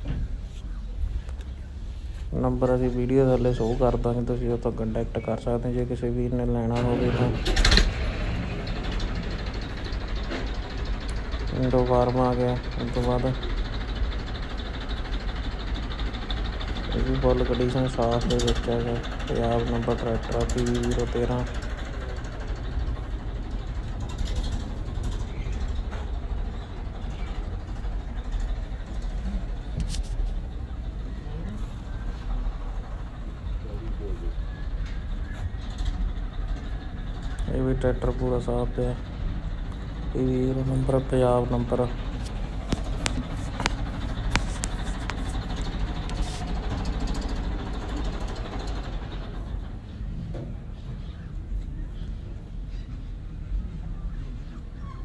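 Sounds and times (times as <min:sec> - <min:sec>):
diesel tractor engine idling: 0:00.0 - 0:54.9
sharp clicks: 0:42.0 - 0:46.2.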